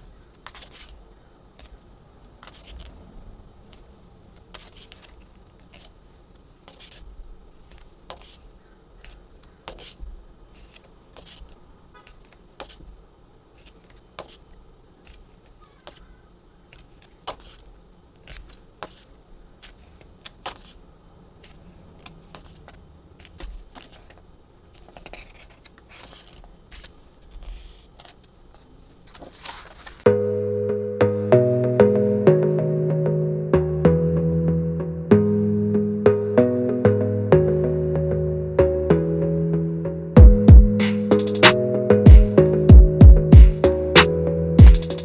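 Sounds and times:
paper pages rustling: 0.4 - 3.1, 3.7 - 6.0, 6.6 - 7.1, 7.7 - 16.1, 16.7 - 30.1.

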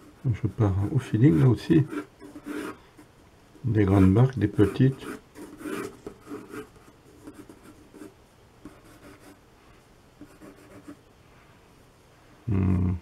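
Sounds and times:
pencil scratching on paper: 0.0 - 3.1, 3.7 - 9.4, 10.2 - 11.0.

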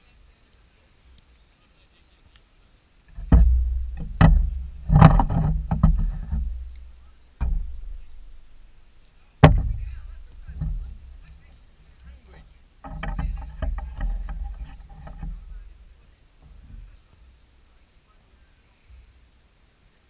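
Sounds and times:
low thumps on microphone: 3.1 - 8.8, 9.4 - 17.3.

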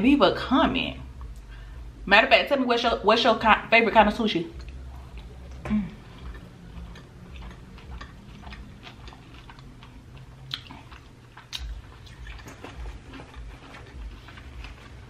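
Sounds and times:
wet chewing mouth clicks: 4.6 - 15.0.

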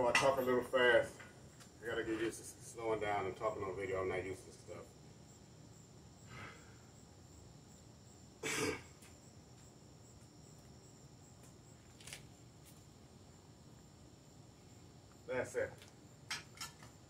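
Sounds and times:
man coughing: 8.4 - 9.0.

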